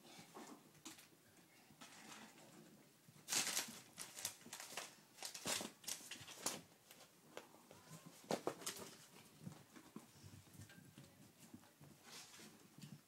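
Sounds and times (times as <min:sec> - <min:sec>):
newspaper rustling and crinkling: 0:03.2 - 0:07.1.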